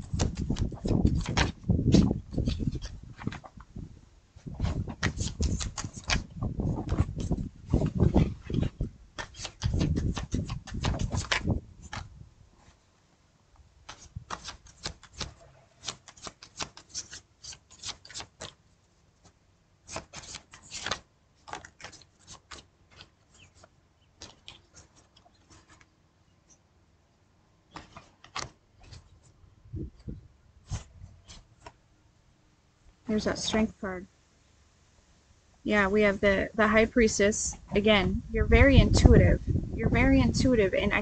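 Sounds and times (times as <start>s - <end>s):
cards being shuffled by hand: 0.0s - 3.7s, 4.4s - 12.8s, 13.8s - 26.6s, 27.6s - 31.8s.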